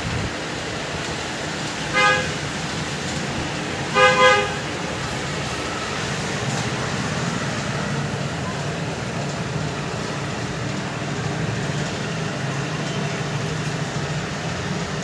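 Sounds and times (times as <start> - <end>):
steady background noise: 0.0 - 15.0
horn honking: 1.9 - 2.4, 3.9 - 4.7.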